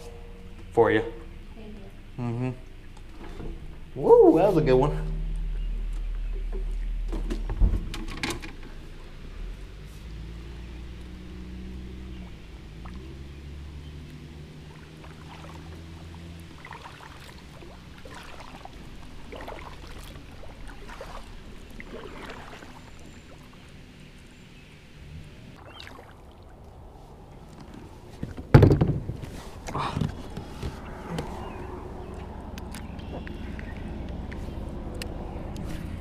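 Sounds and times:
low steady hum: 0:00.0 - 0:36.0
kayak paddle splashing in water: 0:14.6 - 0:24.8, 0:25.6 - 0:26.8.

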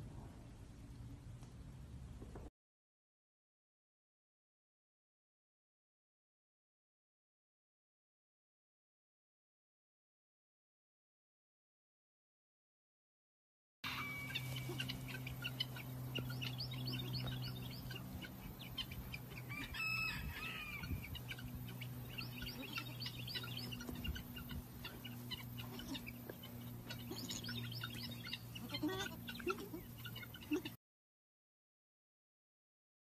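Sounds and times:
steady low hum: 0:00.0 - 0:02.5, 0:13.9 - 0:30.8
young animals peeping: 0:13.9 - 0:30.8.

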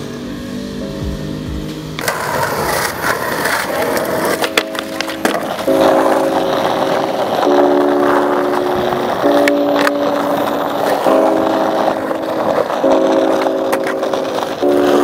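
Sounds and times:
background music with held notes: 0:00.0 - 0:15.0
skateboard wheels rolling on pavement: 0:01.0 - 0:15.0
skateboard clacking on curb: 0:02.0 - 0:15.0.

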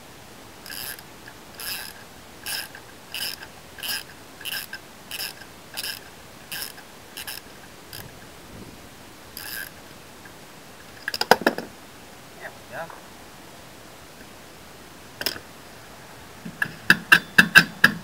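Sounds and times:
ratchet wrench clicking: 0:00.6 - 0:01.0, 0:01.6 - 0:08.0, 0:09.4 - 0:09.7.

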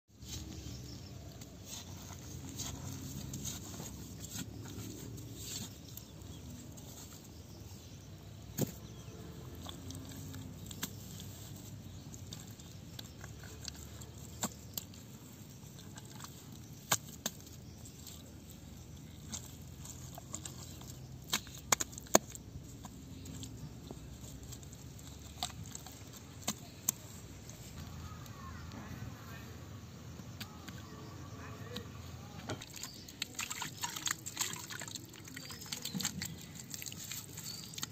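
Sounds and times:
hands scooping wet mud: 0:00.2 - 0:28.4, 0:32.6 - 0:37.9.

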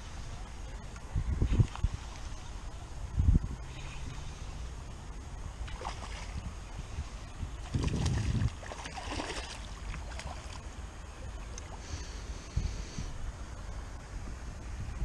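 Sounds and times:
soft splashes: 0:05.6 - 0:06.6, 0:07.2 - 0:11.8
water sloshing and lapping: 0:05.6 - 0:11.9.

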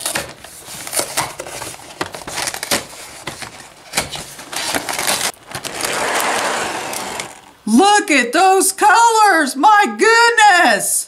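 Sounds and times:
plastic bag crinkling: 0:00.0 - 0:07.6
cardboard box tearing: 0:04.0 - 0:07.6.

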